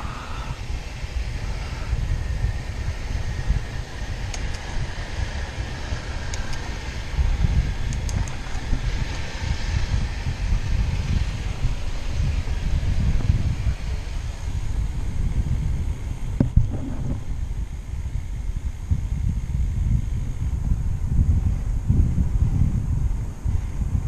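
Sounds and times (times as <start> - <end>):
wind buffeting microphone: 0.0 - 24.0
faint ticks: 7.9 - 8.6.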